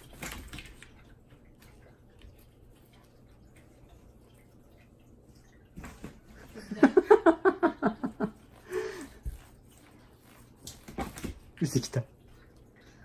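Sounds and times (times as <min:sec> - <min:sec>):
person laughing: 0:06.6 - 0:09.1.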